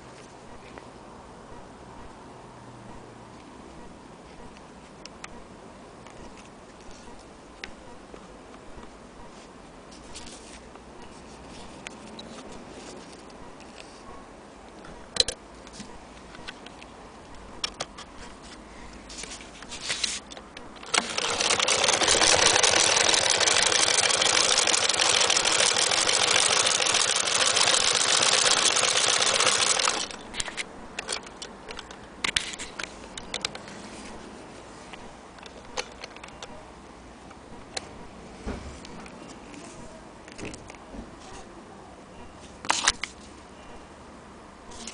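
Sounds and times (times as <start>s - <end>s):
hand-crank sewing machine clatter: 20.8s - 30.2s.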